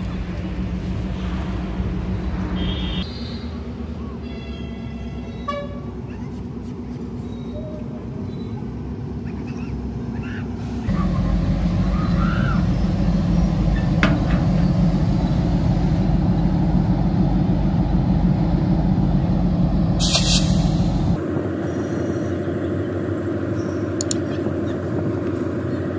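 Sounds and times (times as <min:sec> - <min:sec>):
diesel locomotive engine humming: 0:00.0 - 0:25.9
loud hiss: 0:20.0 - 0:21.2
sharp click: 0:24.0 - 0:24.2.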